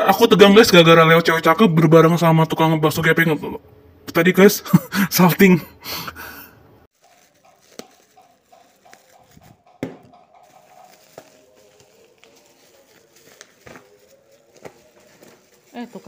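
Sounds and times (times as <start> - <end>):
plastic mailer bag rustling: 6.9 - 9.6, 10.4 - 16.0.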